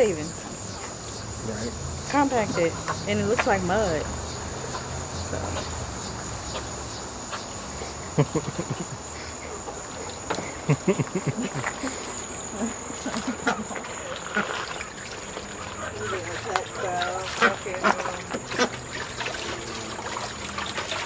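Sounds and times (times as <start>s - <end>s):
crickets droning: 0.0s - 21.0s.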